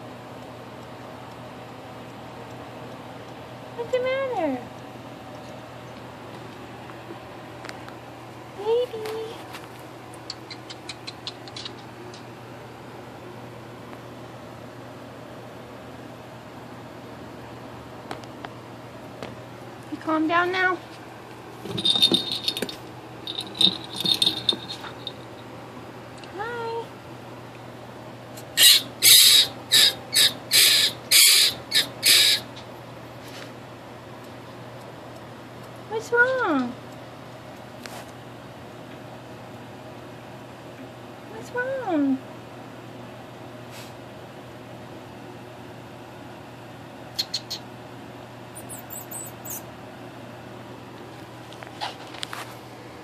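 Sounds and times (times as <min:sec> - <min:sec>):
rodent squeak: 0:10.3 - 0:11.9, 0:28.6 - 0:32.5, 0:47.2 - 0:47.7, 0:48.6 - 0:49.7
rodent screaming: 0:28.6 - 0:32.5, 0:48.6 - 0:49.6.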